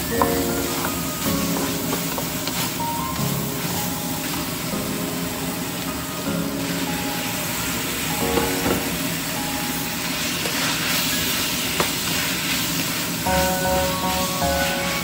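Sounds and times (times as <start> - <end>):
cabbage sizzling in hot oil: 0.0 - 15.0
spatula stirring in a pan: 0.2 - 4.7, 10.0 - 15.0.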